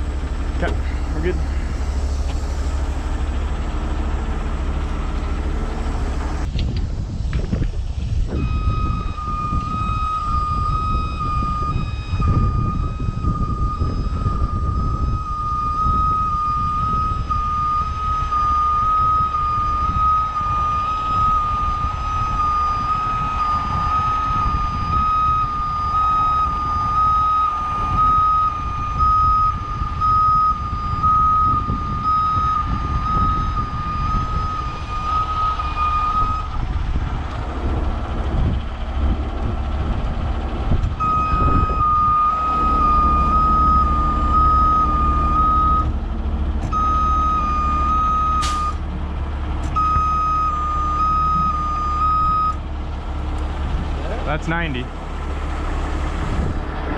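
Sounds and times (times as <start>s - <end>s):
diesel engine running: 0.0s - 56.9s
warning alarm beeping: 8.3s - 36.6s, 41.0s - 46.0s, 46.7s - 48.8s, 49.8s - 52.6s.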